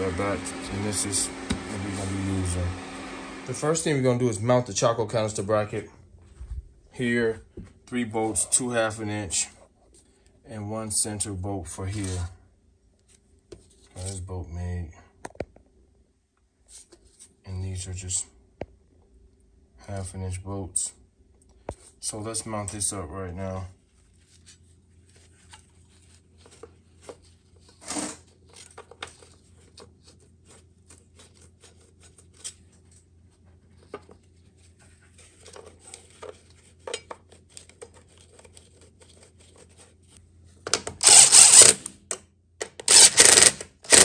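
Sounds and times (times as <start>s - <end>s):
hand ratchet rattling: 42.9s - 44.0s.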